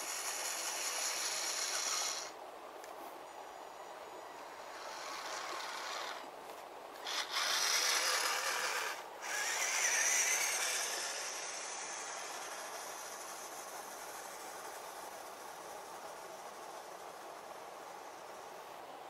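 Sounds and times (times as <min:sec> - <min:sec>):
toy car electric motor whine: 0:00.0 - 0:02.4, 0:04.4 - 0:06.3, 0:07.0 - 0:18.6
tyres on grass: 0:04.4 - 0:11.2.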